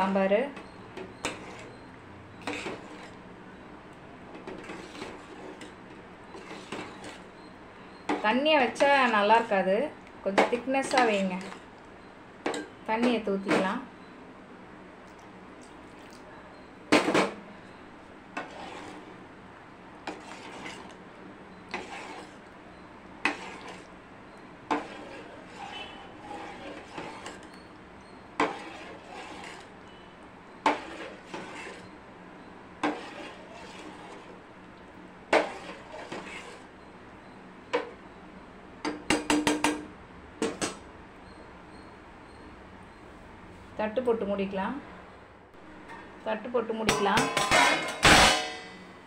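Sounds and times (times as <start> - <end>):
metal ladle knocking on pot: 46.9 - 48.5.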